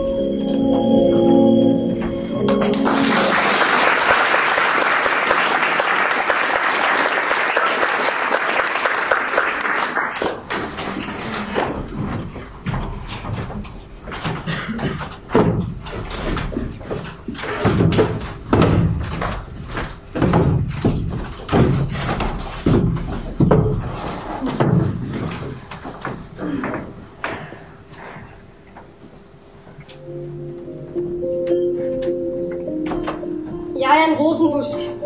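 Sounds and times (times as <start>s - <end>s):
audience applauding: 2.4s - 10.8s
footsteps on stage: 10.2s - 30.0s
boxes thudding on wooden floor: 14.3s - 26.9s.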